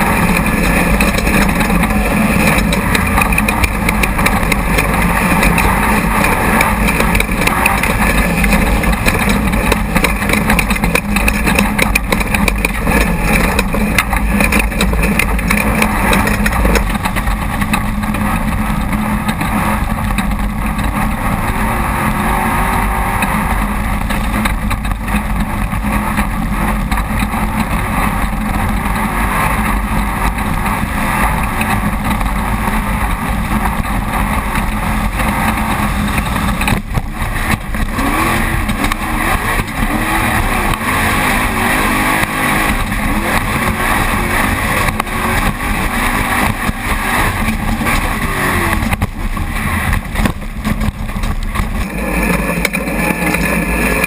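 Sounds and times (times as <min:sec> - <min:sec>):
loud rush of noise: 0:00.0 - 0:54.0
race car engine revving: 0:00.0 - 0:54.0.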